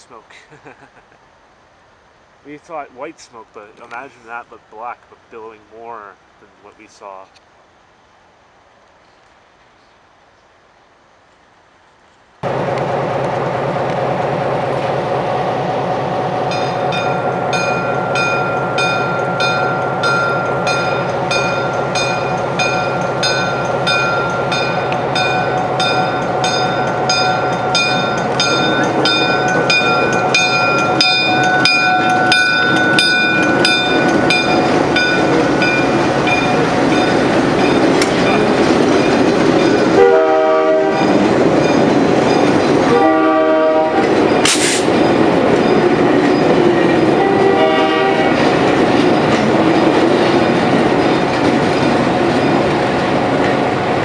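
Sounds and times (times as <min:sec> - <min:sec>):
diesel locomotive rumbling: 0:01.1 - 0:08.2, 0:12.4 - 0:54.0
locomotive bell ringing: 0:16.2 - 0:52.8
air horn blasts: 0:40.0 - 0:41.1, 0:42.9 - 0:44.8, 0:47.2 - 0:48.4.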